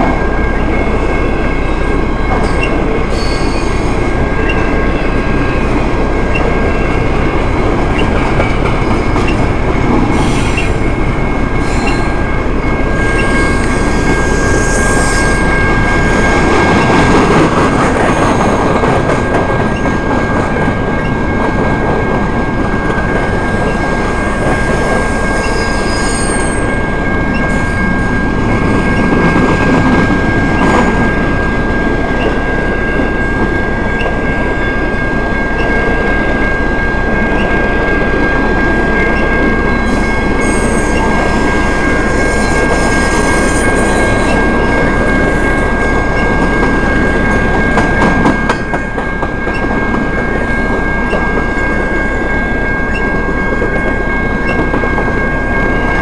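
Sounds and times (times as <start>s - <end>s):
wheels clacking over rail joints: 0.0s - 14.3s
train wheels rumbling on rail: 0.0s - 56.0s
high wheel squeal: 1.6s - 7.0s, 10.1s - 10.8s, 11.5s - 16.4s, 23.7s - 28.1s, 39.7s - 45.5s
sharp wheel squeals: 2.4s - 5.7s, 11.6s - 12.2s, 13.0s - 15.7s, 25.0s - 26.7s.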